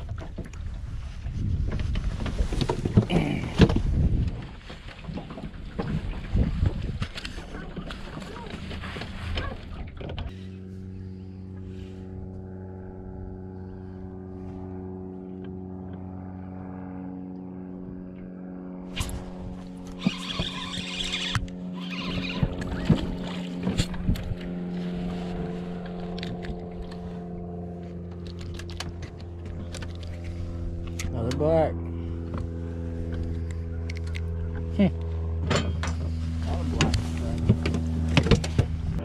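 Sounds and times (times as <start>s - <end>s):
electric motor humming: 18.9s - 31.1s.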